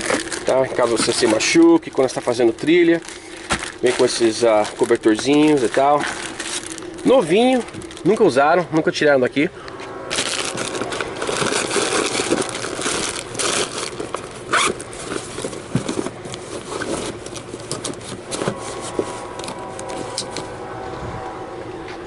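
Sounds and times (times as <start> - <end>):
plastic bag crinkling: 0.0 - 8.6, 10.1 - 20.4
scraping: 9.8 - 22.0.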